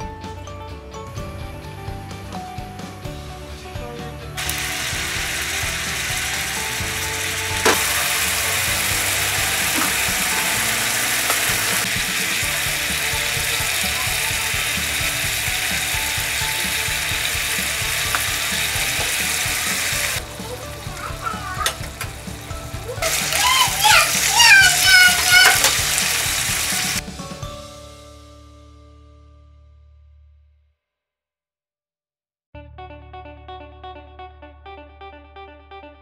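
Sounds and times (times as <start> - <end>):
meat sizzling in a skillet: 4.4 - 27.0.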